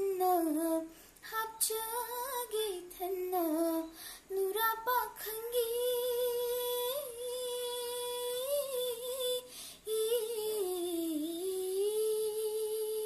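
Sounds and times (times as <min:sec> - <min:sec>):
girl singing long notes: 0:00.0 - 0:13.0.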